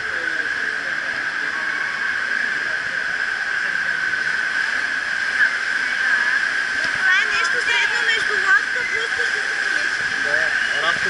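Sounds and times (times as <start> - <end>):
constant high hum: 0.0 - 11.0.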